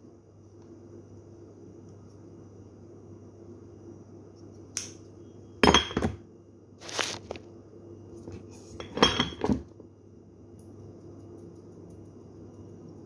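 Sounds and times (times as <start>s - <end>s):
dishes and utensils clinking: 5.6s - 6.2s, 8.8s - 9.6s.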